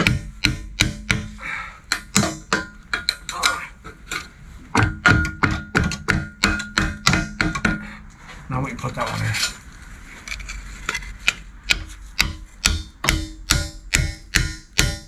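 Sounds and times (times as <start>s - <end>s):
hammer striking steel beam: 0.0s - 3.6s, 4.7s - 7.9s, 11.2s - 15.0s.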